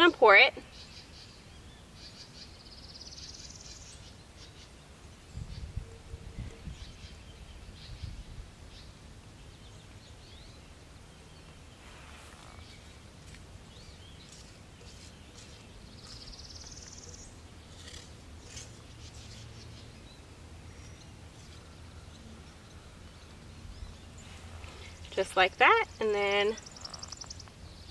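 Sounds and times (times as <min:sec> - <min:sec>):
birds chirping and calling: 0:00.0 - 0:27.9
low steady rumble: 0:03.7 - 0:27.9
buzzy bird trill: 0:24.1 - 0:27.5.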